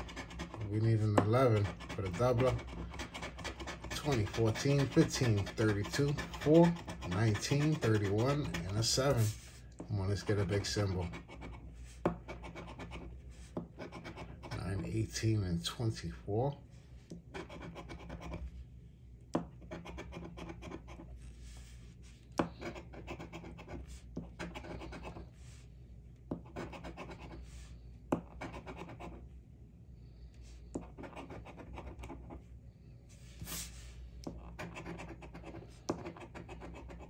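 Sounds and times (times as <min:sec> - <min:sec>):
coin scratching lottery ticket: 0:00.0 - 0:09.4, 0:13.8 - 0:14.9, 0:22.5 - 0:25.2, 0:26.5 - 0:27.4, 0:28.3 - 0:29.2, 0:34.4 - 0:37.0.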